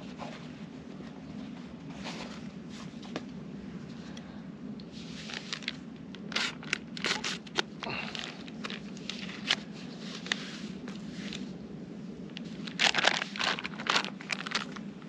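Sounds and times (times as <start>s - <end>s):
foil pouch crinkling and tearing: 5.2s - 10.4s, 12.3s - 15.0s.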